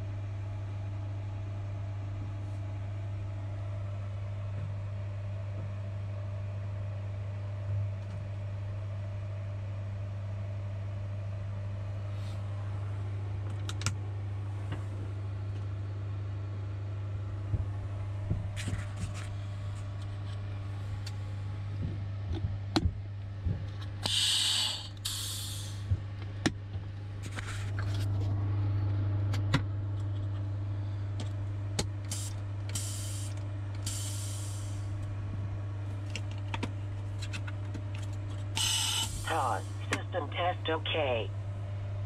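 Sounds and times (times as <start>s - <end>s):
low electrical hum: 0.0s - 42.0s
short bursts of hissing: 24.1s - 25.8s, 38.6s - 39.3s.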